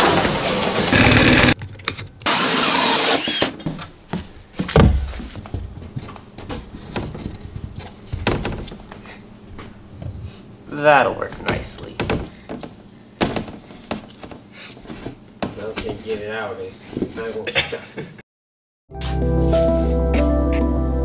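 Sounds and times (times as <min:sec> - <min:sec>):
power tool running: 0:00.0 - 0:01.6, 0:02.2 - 0:03.6
knocks and thumps on panels: 0:04.6 - 0:08.8, 0:11.4 - 0:14.4.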